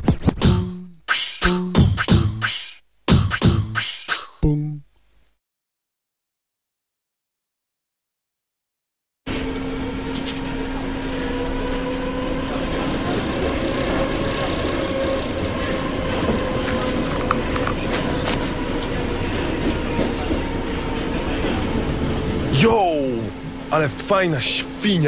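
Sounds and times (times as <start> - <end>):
train carriage rumble: 9.3 - 25.0.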